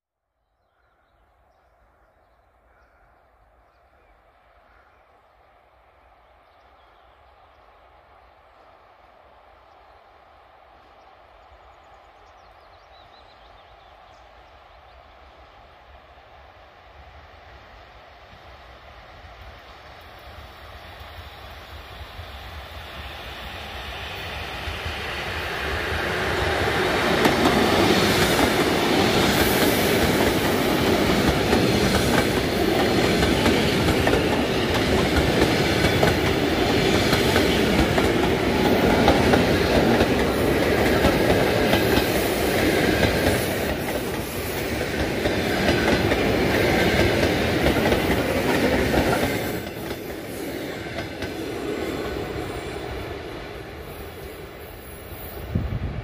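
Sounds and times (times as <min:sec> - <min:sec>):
train passing at speed: 0:03.4 - 0:56.0.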